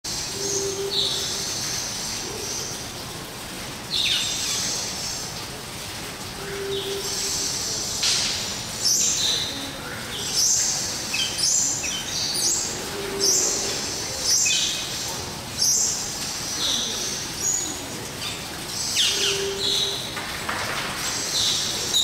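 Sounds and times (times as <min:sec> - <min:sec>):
birds calling: 0:06.4 - 0:22.0.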